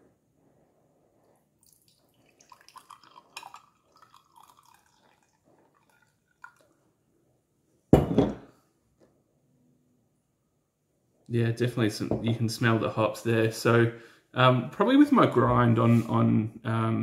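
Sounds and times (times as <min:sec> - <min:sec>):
coffee pouring into glass: 0:01.6 - 0:06.9.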